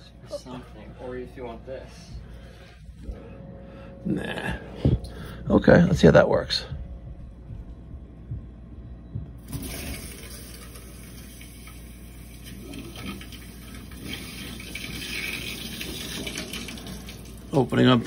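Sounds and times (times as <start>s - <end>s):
water rushing through pipes: 9.4s - 18.0s.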